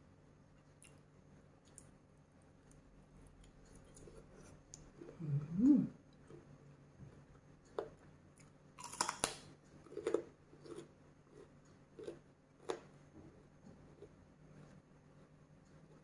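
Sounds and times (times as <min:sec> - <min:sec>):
person chewing crisp greens: 0:00.6 - 0:05.2, 0:07.1 - 0:13.1.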